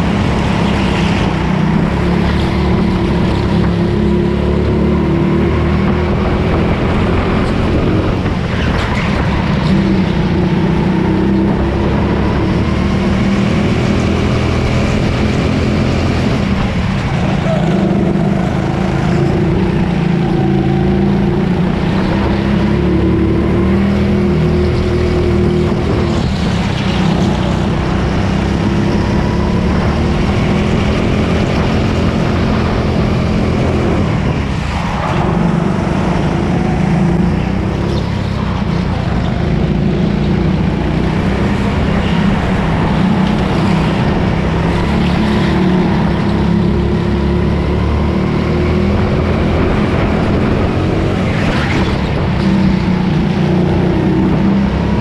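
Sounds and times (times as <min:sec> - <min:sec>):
go-kart engine racing: 0:00.0 - 0:55.0.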